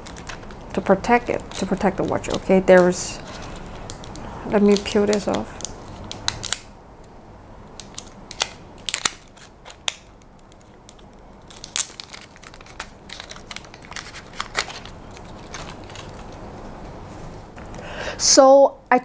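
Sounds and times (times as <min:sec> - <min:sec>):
plastic film crinkling: 0:00.0 - 0:06.7, 0:07.8 - 0:16.7.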